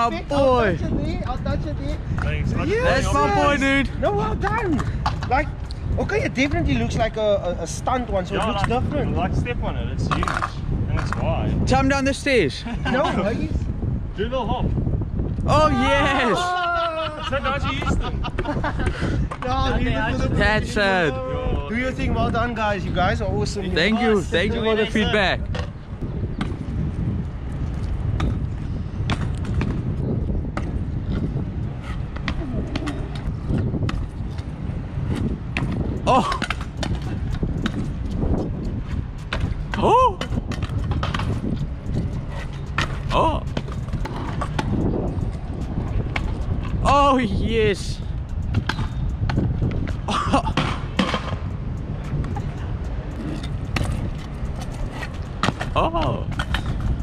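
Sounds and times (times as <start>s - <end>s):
scooter wheels rumbling on asphalt: 0.0s - 57.0s
scooter clicks and knocks: 10.1s - 11.3s, 32.1s - 46.8s, 48.1s - 57.0s
person shouting: 15.5s - 17.4s, 39.8s - 40.2s
scooter clattering on ground: 52.1s - 57.0s.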